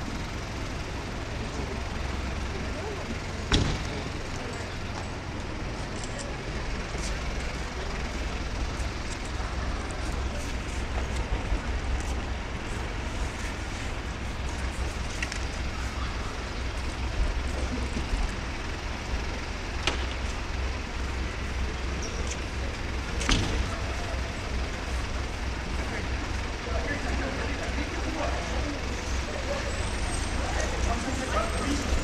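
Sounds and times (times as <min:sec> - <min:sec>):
fire engines idling: 0:00.0 - 0:32.0
street noise: 0:00.0 - 0:32.0.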